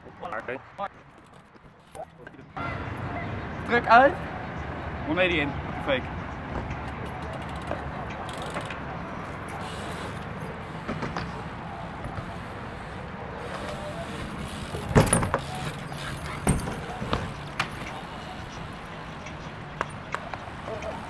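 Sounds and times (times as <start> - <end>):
bike rolling on concrete: 0.0 - 3.0, 3.6 - 21.0
bike hitting concrete ledge: 13.4 - 18.0.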